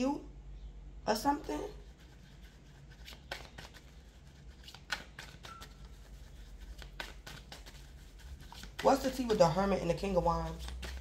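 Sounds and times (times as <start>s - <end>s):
low room hum: 0.0s - 11.0s
cards clicking and flicking: 3.0s - 3.9s, 4.6s - 6.0s, 6.6s - 7.9s, 10.4s - 11.0s.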